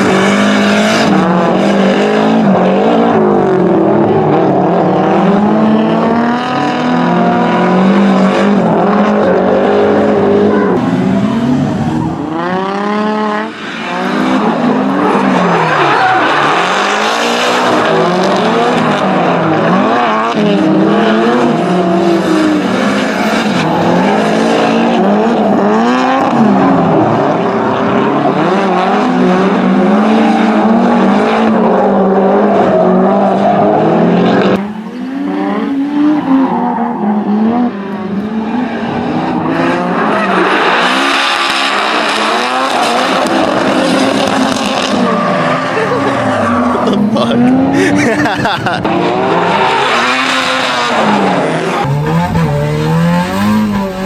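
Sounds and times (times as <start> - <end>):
car engines revving hard: 0.0 - 54.0
tyre screech: 13.4 - 19.2.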